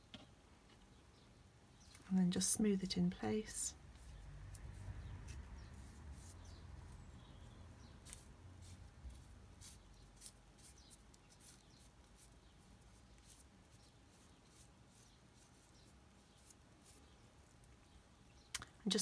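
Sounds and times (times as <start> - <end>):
fingertips rubbing tissue paper: 3.9 - 17.6.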